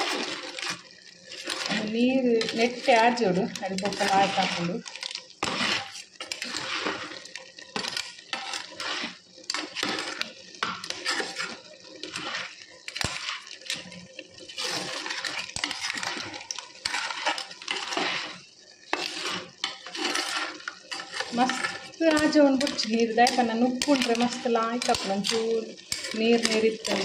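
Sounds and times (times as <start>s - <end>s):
clam shells clinking in pot: 18.9s - 27.0s.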